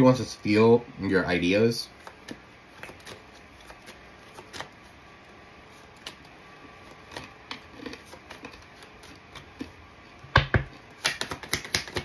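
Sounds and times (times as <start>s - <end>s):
cards being shuffled: 1.9s - 5.0s, 5.6s - 9.8s, 10.9s - 12.0s
cards clicking: 11.0s - 12.0s.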